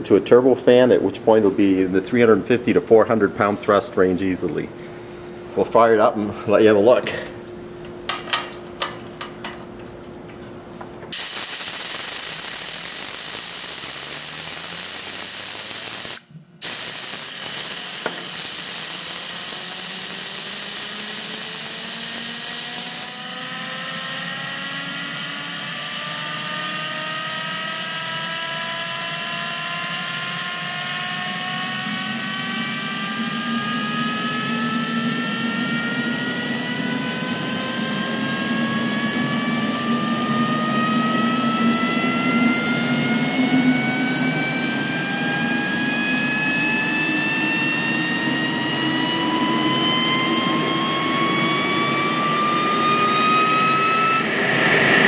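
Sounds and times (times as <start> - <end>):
jet turbine whine: 0.0 - 55.0
rush of compressed air: 11.1 - 55.0.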